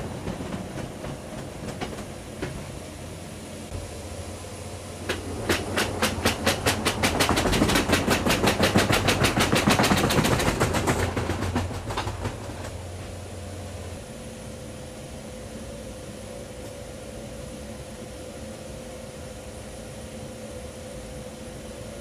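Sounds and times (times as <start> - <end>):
steady low hum: 0.0 - 22.0
pallet rolling on roller conveyor: 5.0 - 13.0.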